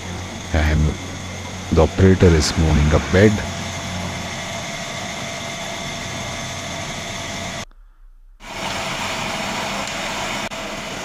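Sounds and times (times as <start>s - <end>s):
milling machine cutting metal: 0.0s - 7.6s.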